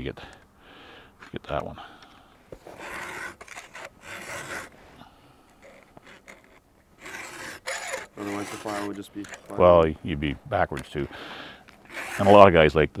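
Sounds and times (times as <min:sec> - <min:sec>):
file rasping on chainsaw chain: 0:02.6 - 0:04.8, 0:05.6 - 0:09.6, 0:11.7 - 0:12.5.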